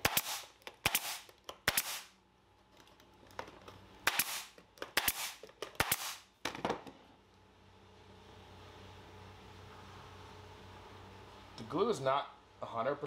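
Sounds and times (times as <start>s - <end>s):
nail gun firing: 0.0s - 2.1s, 4.0s - 6.3s.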